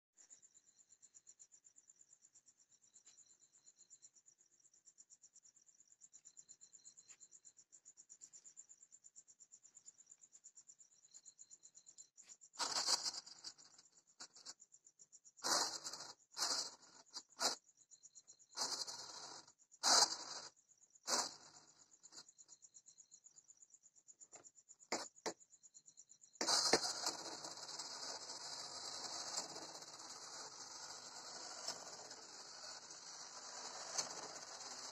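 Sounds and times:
electric motor and propeller: 18.6s - 20.5s, 26.4s - 34.9s.

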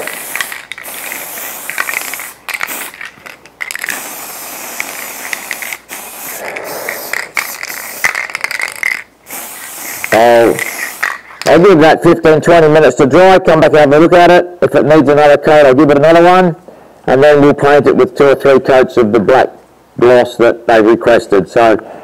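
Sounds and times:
aerosol spray can hissing: 0.0s - 11.5s.

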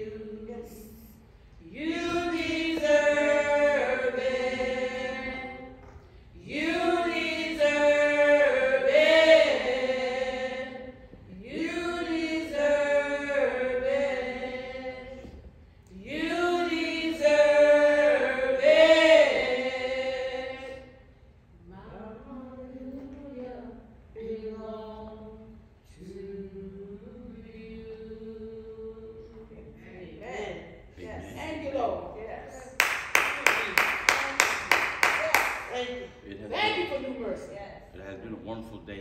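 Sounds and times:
slow gospel worship singing: 0.0s - 30.1s.

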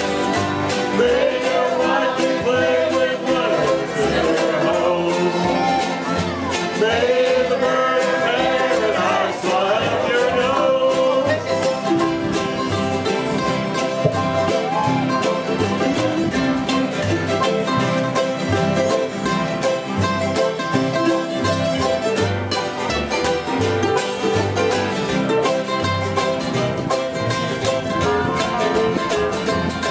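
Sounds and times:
string band playing country music: 0.0s - 29.9s
voices singing along: 0.6s - 12.3s, 27.6s - 29.9s.

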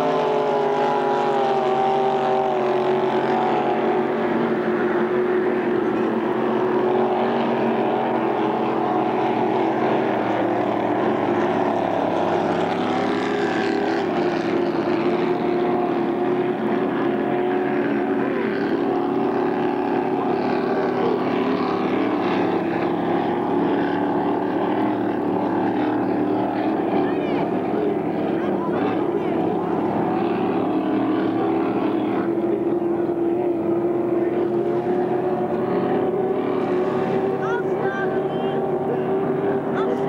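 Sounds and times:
powerboat engines droning: 0.0s - 40.0s.

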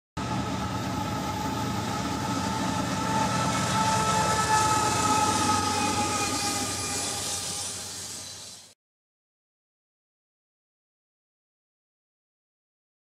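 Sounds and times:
freight train rumbling past: 0.2s - 8.8s.

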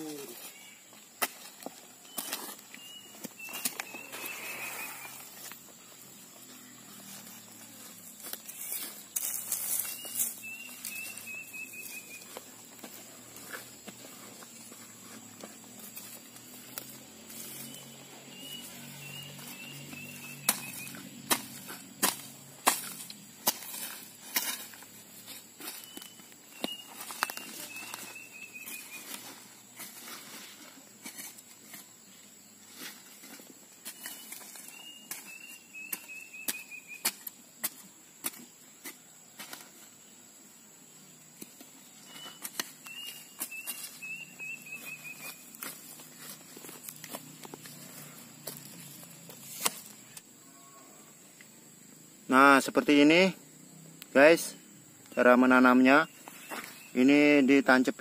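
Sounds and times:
hands patting and scraping soil: 0.0s - 40.1s, 41.3s - 50.3s, 56.1s - 57.3s
hoe striking soil: 18.4s - 32.0s, 32.8s - 39.9s, 41.4s - 47.5s, 49.3s - 50.2s.

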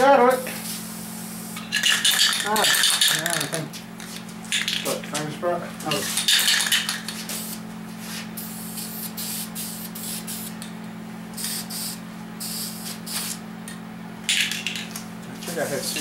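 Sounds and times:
spray paint can hissing: 1.3s - 3.5s, 6.2s - 7.6s, 8.4s - 10.6s, 11.4s - 13.4s.

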